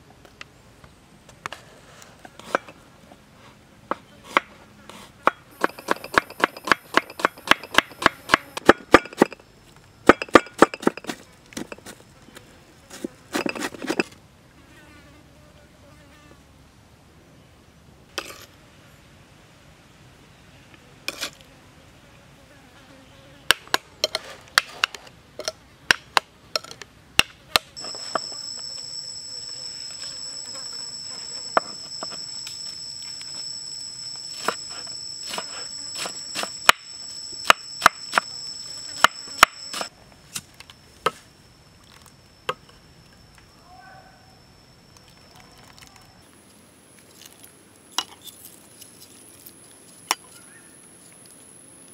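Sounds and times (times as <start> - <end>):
high-pitched insect buzz: 27.8 - 39.9.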